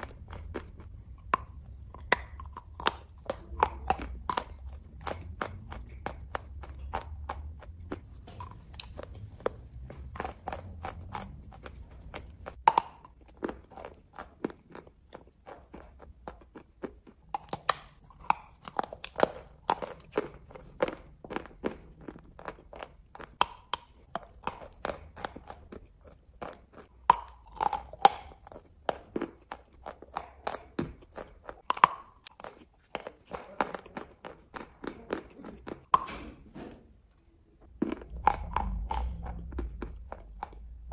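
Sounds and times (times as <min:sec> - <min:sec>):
chalk crunching being chewed: 0:00.0 - 0:40.9.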